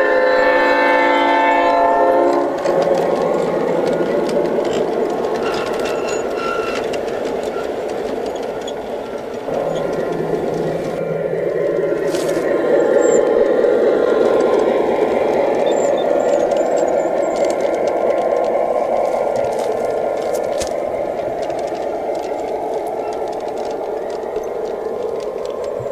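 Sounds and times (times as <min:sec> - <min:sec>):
model train horn chord: 0:00.0 - 0:02.8
model train rumbling: 0:00.0 - 0:25.9
wheels clicking on track: 0:00.0 - 0:25.9.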